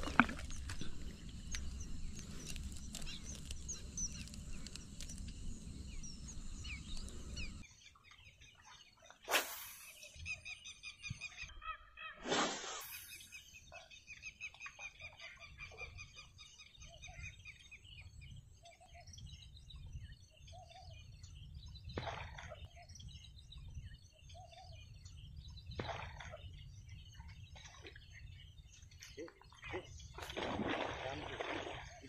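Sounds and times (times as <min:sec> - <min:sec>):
low wind rumble: 0:00.0 - 0:07.6
birds calling: 0:00.0 - 0:32.0
fishing rod cast whoosh: 0:09.2 - 0:10.1, 0:12.2 - 0:13.3.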